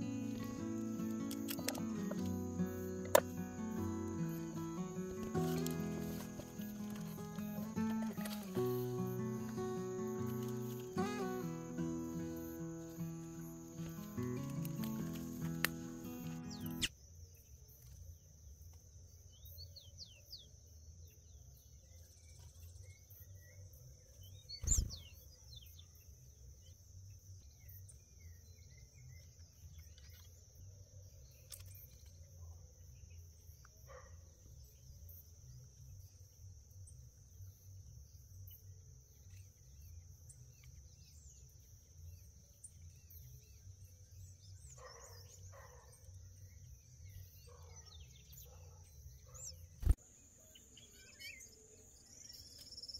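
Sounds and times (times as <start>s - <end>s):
high insect drone: 0.0s - 16.9s
wild birds chirping: 0.0s - 16.9s, 42.4s - 52.9s.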